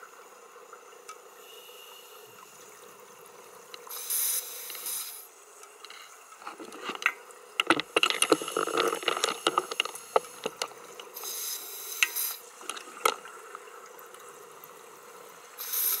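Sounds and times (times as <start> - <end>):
faint steady hum: 0.0 - 16.0
breathing gear hiss: 1.4 - 2.6, 3.9 - 6.2, 11.1 - 12.5, 15.6 - 16.0
underwater clicks and crackles: 2.4 - 15.6.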